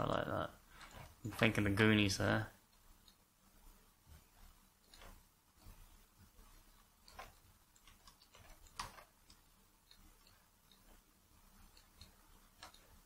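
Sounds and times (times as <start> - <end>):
faint mouse clicks: 6.4 - 13.0.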